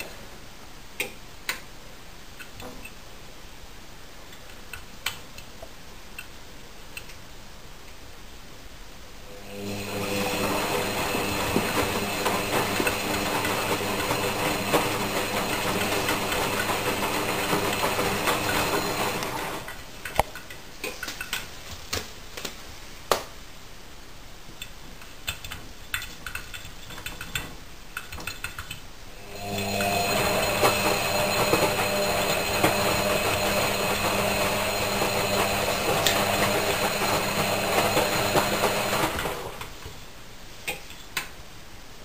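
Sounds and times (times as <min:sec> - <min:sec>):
washing machine motor humming: 0:09.3 - 0:19.9, 0:29.2 - 0:39.8
clicks and taps: 0:19.7 - 0:22.5, 0:24.6 - 0:28.9.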